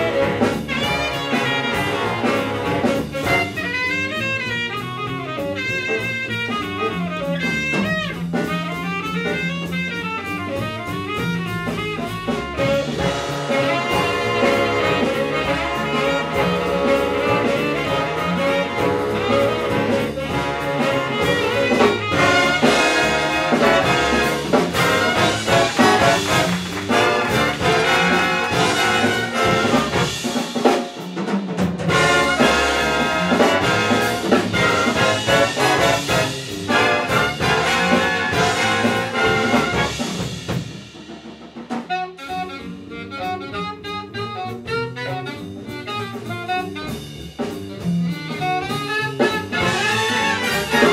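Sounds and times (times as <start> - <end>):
brass and reed sections playing: 0.0 - 4.7, 12.0 - 30.4, 31.9 - 40.3, 48.6 - 50.9
saxophone solo: 0.0 - 30.4, 31.9 - 40.2, 41.9 - 50.9
big band jazz: 0.0 - 50.9.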